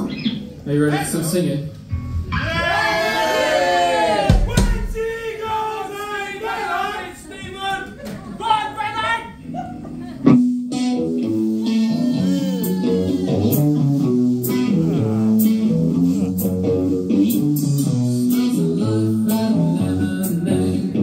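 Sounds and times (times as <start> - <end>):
live rock band playing: 1.9 - 3.5, 9.4 - 20.9
drum hits: 4.2 - 5.3.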